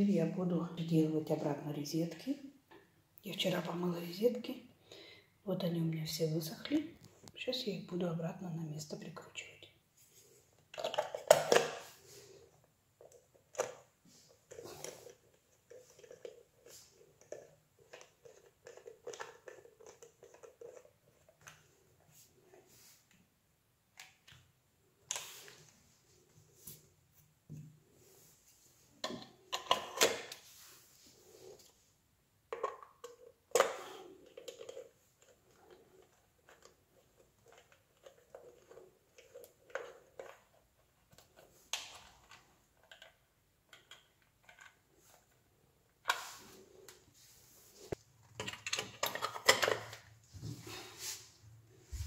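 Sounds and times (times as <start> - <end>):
plastic clicks and scrapes: 13.0 - 21.8, 32.6 - 45.4, 47.9 - 50.1.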